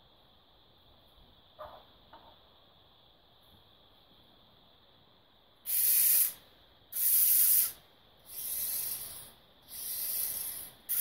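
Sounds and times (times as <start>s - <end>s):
short hissing bursts: 5.6s - 11.0s.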